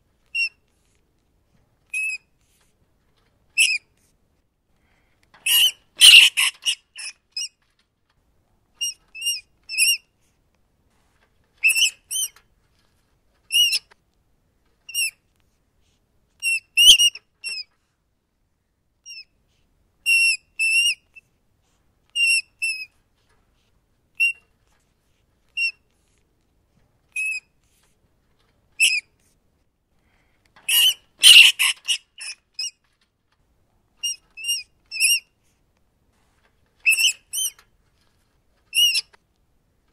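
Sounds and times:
rats squeaking: 0.3 - 0.9, 1.9 - 4.1, 5.4 - 7.8, 8.8 - 10.1, 11.5 - 14.0, 14.9 - 15.2, 16.4 - 17.8, 19.0 - 19.4, 20.0 - 21.3, 22.1 - 23.0, 24.2 - 24.8, 25.5 - 26.2, 27.1 - 27.9, 28.8 - 29.3, 30.7 - 33.0, 34.0 - 35.4, 36.7 - 39.2.

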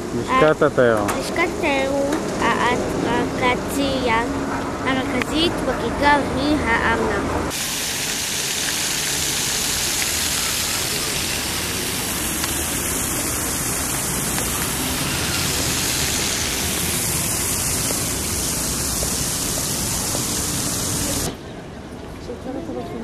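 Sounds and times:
fountain water splashing: 4.9 - 21.4.

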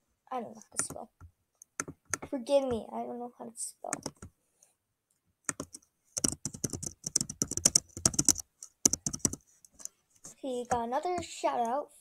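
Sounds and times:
typing on computer keyboard: 1.8 - 2.3, 5.5 - 9.9.

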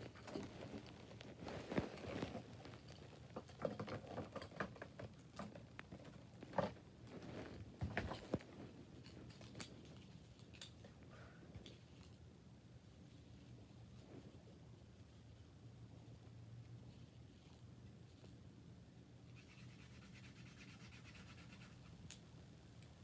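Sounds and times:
rustling of things handled: 0.0 - 12.3.

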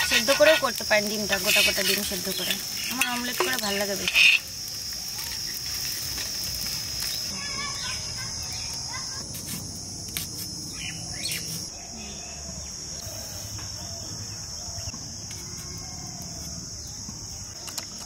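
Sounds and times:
insects droning: 0.0 - 18.0.

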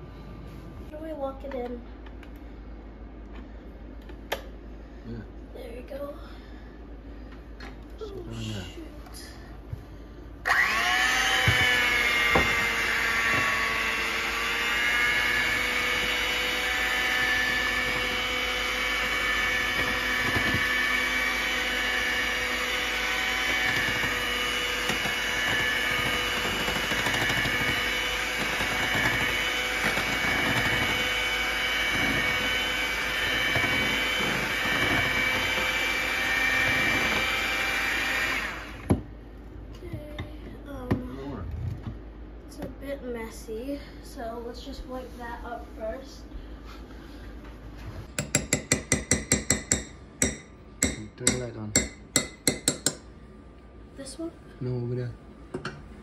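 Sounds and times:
electric hand mixer whine: 10.4 - 39.0
mixer beaters knocking: 23.3 - 37.6.

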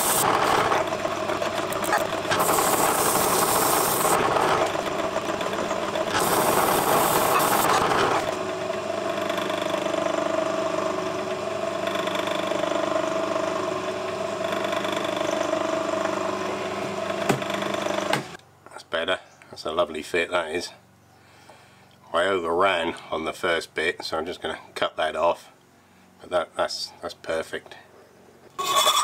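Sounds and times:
harsh grinding noise: 0.0 - 18.4, 28.6 - 29.0
machinery motor hum: 0.0 - 18.4.

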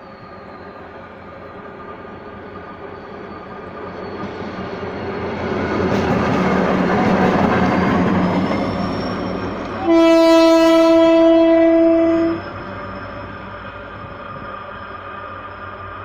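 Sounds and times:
train rumbling and clattering: 0.0 - 16.0
locomotive air horn blast: 9.8 - 12.4.

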